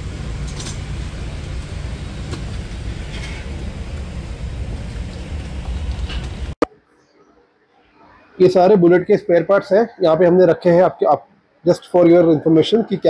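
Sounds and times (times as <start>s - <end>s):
low background rumble: 0.0s - 6.6s.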